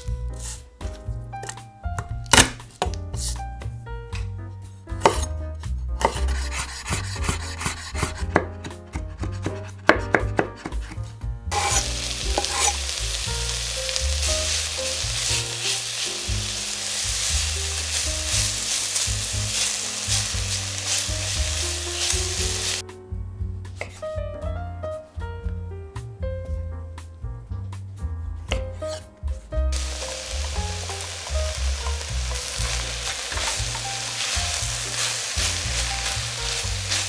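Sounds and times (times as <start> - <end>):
knife chopping on wooden board: 5.0 - 5.3, 6.0 - 11.0, 11.6 - 12.7
onion sizzling in oil: 11.5 - 22.8, 29.7 - 37.0
spatula stirring in pot: 11.6 - 12.9.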